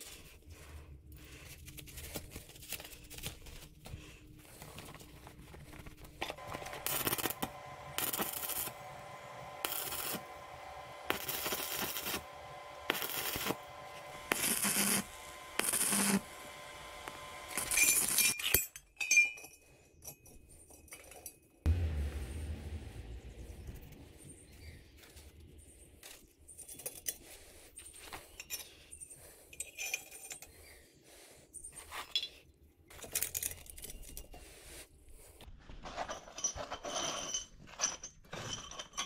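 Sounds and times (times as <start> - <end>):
steady welder hum: 6.4 - 18.4
welding arc crackle: 6.4 - 18.4.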